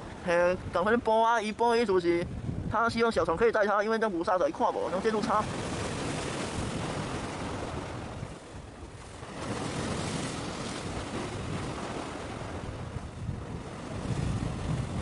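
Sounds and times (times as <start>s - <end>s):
sea water rushing: 0.0s - 15.0s
wind on microphone: 0.0s - 15.0s.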